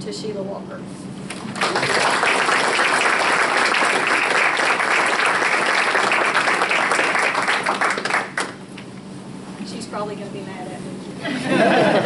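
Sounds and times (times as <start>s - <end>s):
people applauding: 1.3s - 8.6s.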